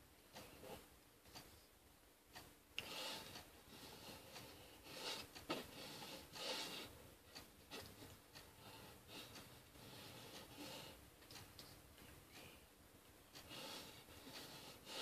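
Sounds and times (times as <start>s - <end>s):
soft clicks: 11.2s - 12.5s.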